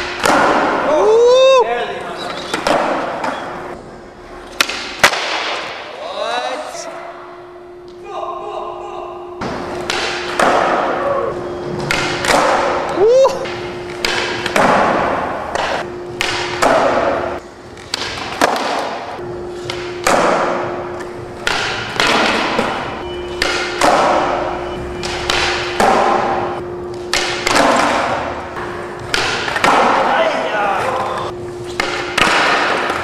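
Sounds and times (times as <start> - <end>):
skateboard pops and clacks: 11.9 - 12.7, 17.9 - 19.0, 31.8 - 33.0.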